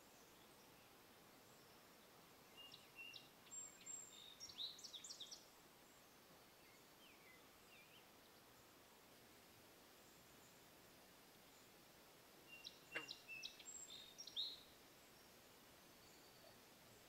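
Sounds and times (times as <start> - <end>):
songbird chirping and trilling: 0.0 - 8.8, 12.4 - 17.0
faint background hiss: 0.0 - 17.0.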